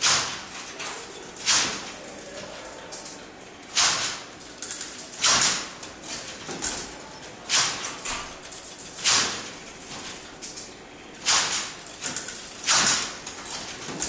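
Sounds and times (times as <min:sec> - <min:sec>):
light clicks and rattles: 0:04.3 - 0:14.0.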